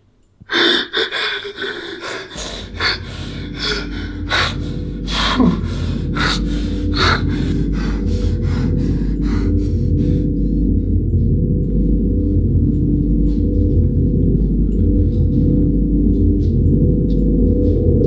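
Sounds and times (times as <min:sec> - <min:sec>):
man sobbing with gasping breaths: 0:00.5 - 0:10.9
low droning tone: 0:02.0 - 0:18.0.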